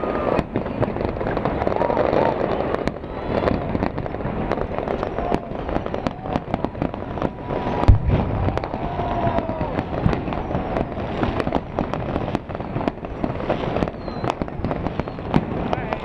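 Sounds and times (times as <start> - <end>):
fireworks bangs and crackles: 0.0 - 16.0
heavy firework boom: 5.2 - 13.4.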